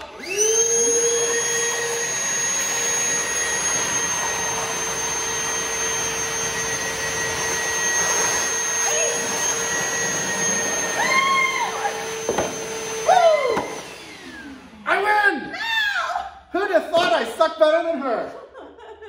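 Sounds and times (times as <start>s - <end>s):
shop vacuums sucking water: 0.0s - 15.1s.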